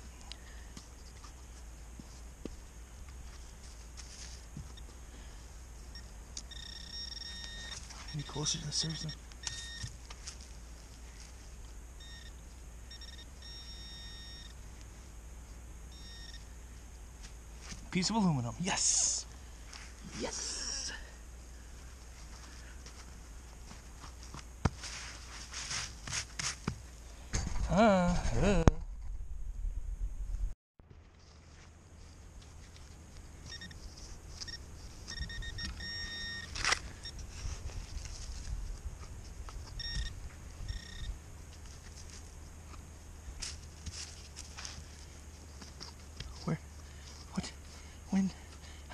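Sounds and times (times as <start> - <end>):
metal detector beeping: 5.9 - 10.0, 12.0 - 14.6, 15.9 - 16.5, 33.4 - 37.5, 39.6 - 41.2.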